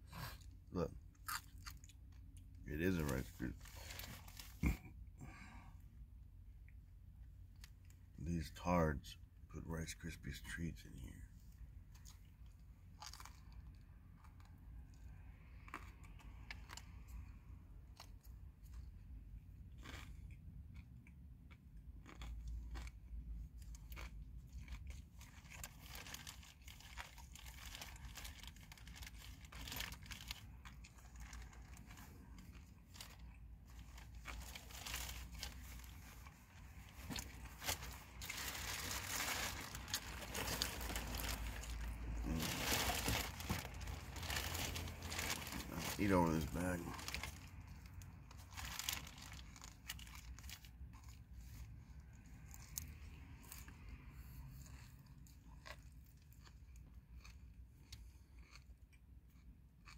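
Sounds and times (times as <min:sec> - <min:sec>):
person chewing and crunching: 0:00.1 - 0:05.6, 0:11.9 - 0:59.9
plastic bag crinkling: 0:25.6 - 0:47.5, 0:48.4 - 0:50.5.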